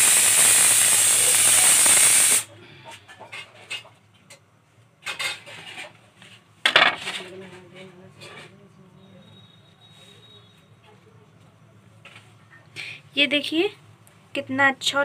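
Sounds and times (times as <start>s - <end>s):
loud steady hiss: 0.0s - 2.6s.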